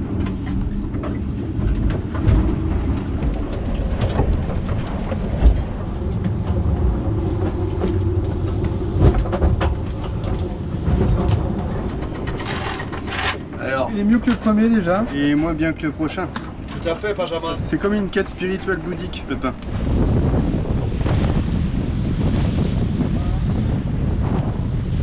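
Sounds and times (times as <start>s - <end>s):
knocks and clatter: 0.0s - 17.0s
water and wind against hull: 0.0s - 25.0s.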